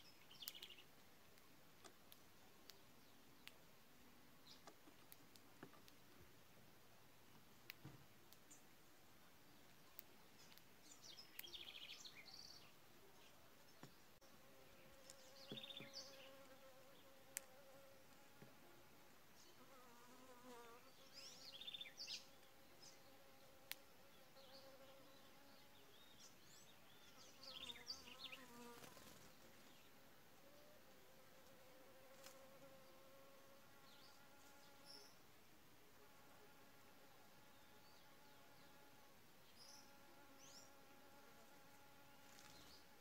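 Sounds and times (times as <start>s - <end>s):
faint bird chirps: 9.5s - 17.2s
insect buzzing: 14.3s - 18.4s, 27.0s - 29.9s, 31.2s - 35.2s, 36.0s - 43.0s.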